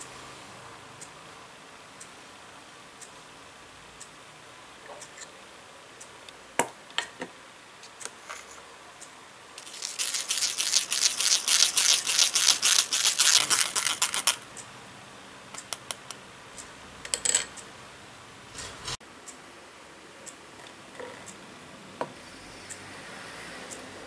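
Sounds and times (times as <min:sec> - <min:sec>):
whisk scratching in metal strainer: 0:18.6 - 0:19.0.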